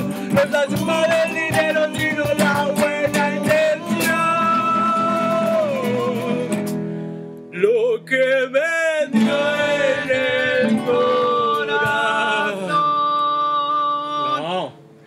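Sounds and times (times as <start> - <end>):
acoustic guitar: 0.0 - 15.0
men singing held notes: 8.9 - 14.8.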